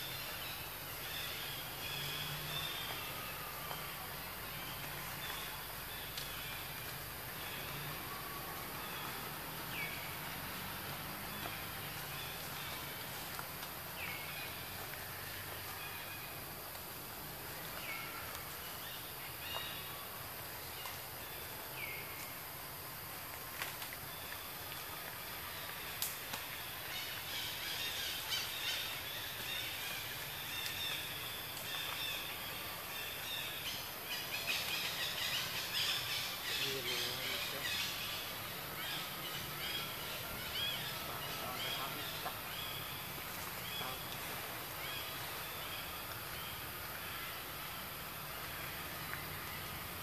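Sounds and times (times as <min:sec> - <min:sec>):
steady forest hiss: 0:00.0 - 0:50.0
small birds chirping: 0:25.6 - 0:47.6.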